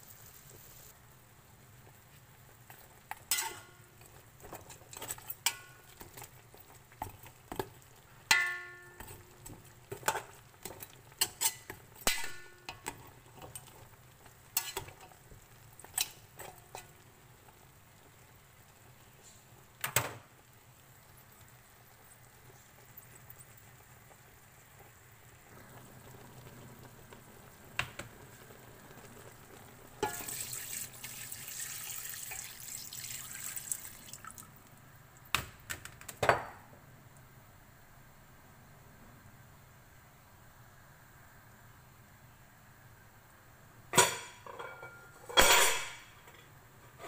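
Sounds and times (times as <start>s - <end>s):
metal spoon scraping a pot: 3.3s - 3.7s.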